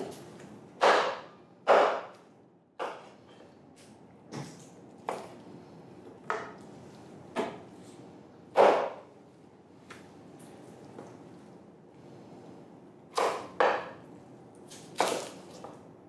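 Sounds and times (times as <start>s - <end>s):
knife striking cutting board: 8.6s - 9.0s.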